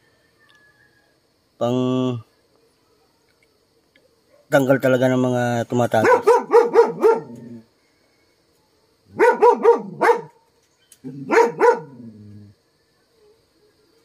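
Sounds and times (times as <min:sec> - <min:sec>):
dog barking: 0:04.2 - 0:04.6, 0:06.0 - 0:07.6, 0:09.1 - 0:10.4, 0:11.1 - 0:12.1.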